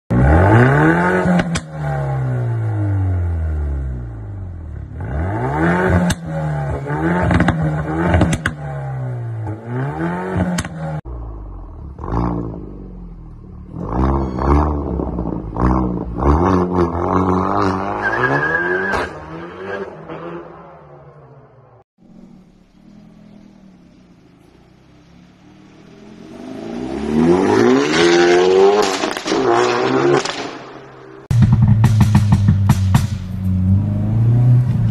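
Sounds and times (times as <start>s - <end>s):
car engine revving: 0.1s - 34.9s
exhaust pops and cracks: 7.3s - 8.7s, 28.8s - 29.5s.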